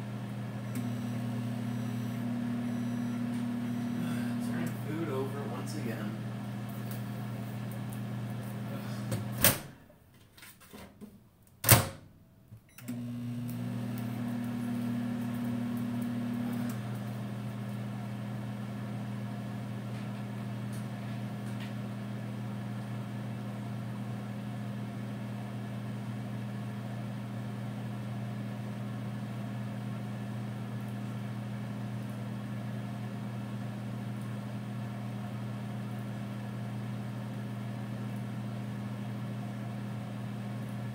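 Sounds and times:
microwave oven humming: 0.0s - 10.0s, 11.6s - 40.9s
higher tone: 0.8s - 4.8s.

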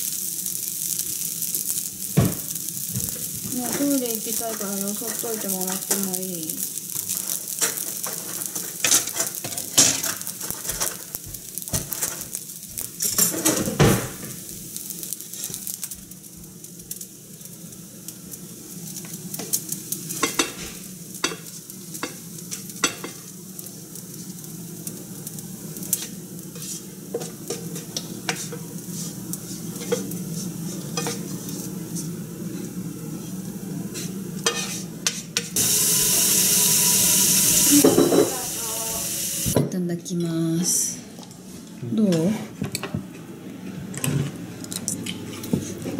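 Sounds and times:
loud steady hiss: 0.0s - 39.6s
spoon scraping and tapping pan: 26.0s - 28.7s, 29.8s - 30.1s, 30.9s - 31.3s, 34.4s - 35.6s.

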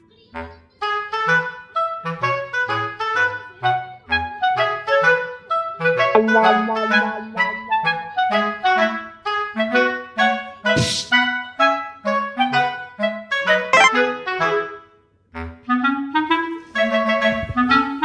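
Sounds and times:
light tune over bass line: 6.2s - 8.3s, 13.8s - 14.0s.

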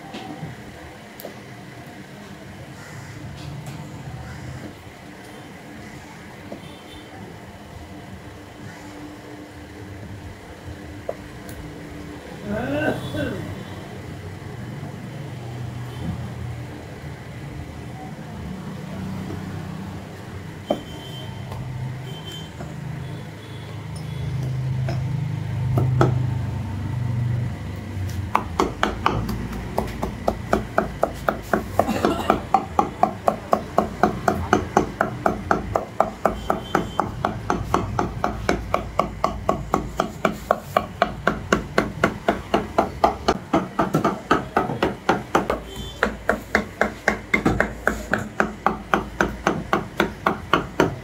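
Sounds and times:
cleaver chopping meat on wood: 28.3s - 51.0s.

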